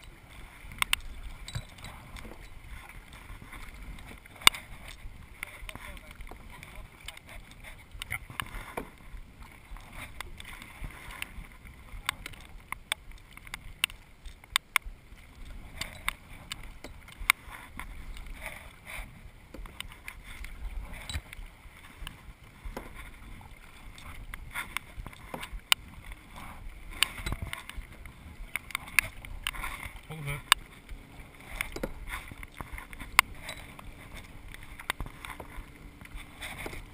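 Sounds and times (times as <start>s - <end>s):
sharp clicks and knocks: 12.0s - 14.9s.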